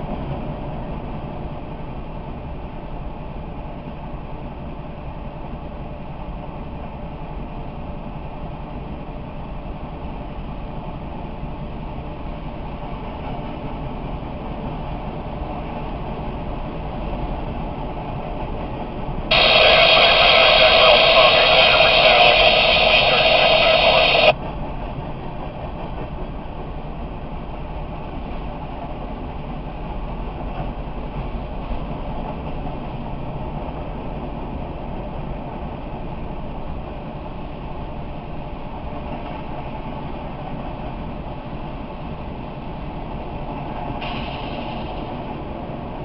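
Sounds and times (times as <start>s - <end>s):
freight train rumbling past: 11.7s - 36.3s
radio static burst: 19.3s - 24.3s.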